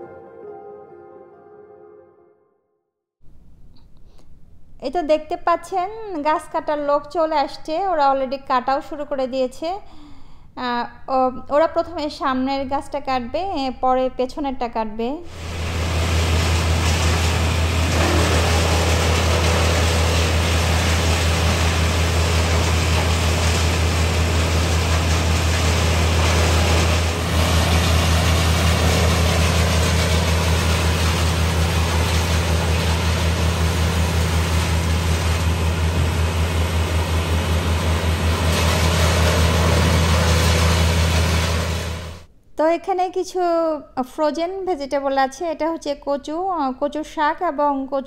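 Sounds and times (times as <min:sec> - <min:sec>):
heavy engine running: 0:15.3 - 0:42.3.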